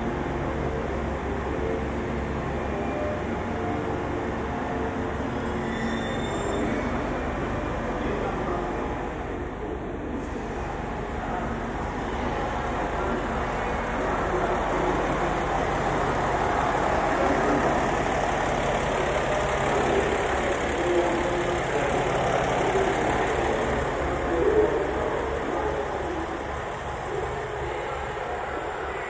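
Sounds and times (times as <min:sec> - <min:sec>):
diesel engine idling: 0:10.4 - 0:29.0.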